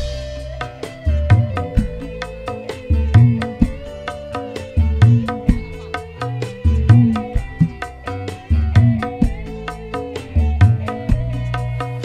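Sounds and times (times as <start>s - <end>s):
hand drum strokes: 0.0s - 12.0s.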